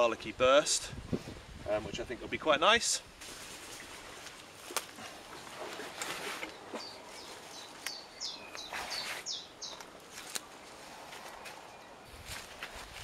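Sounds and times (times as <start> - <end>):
leaves snapping: 3.2 - 5.1, 7.4 - 11.6
plants rustling: 3.2 - 13.0
small bird singing: 6.5 - 9.8.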